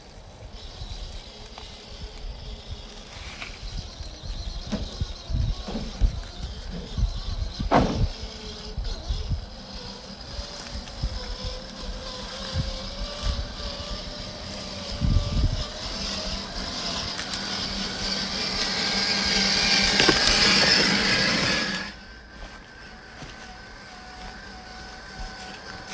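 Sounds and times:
electric motor and gears whining: 0.0 - 25.9.

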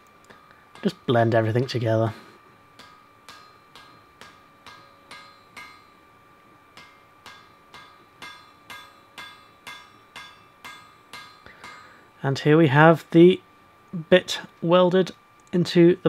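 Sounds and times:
hammer striking metal on anvil: 0.7 - 1.8, 2.7 - 12.1
anvil ringing: 2.8 - 6.1, 6.7 - 12.1.

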